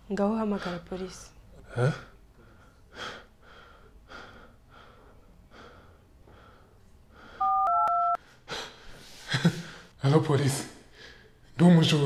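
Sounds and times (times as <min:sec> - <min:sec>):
person panting: 0:02.4 - 0:07.4, 0:08.2 - 0:09.9.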